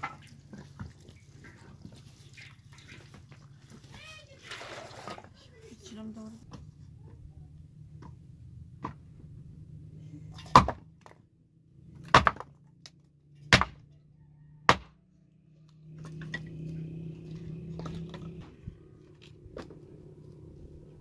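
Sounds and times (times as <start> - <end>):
hatchet chopping firewood: 10.3 - 11.2, 11.9 - 13.9, 14.6 - 15.0.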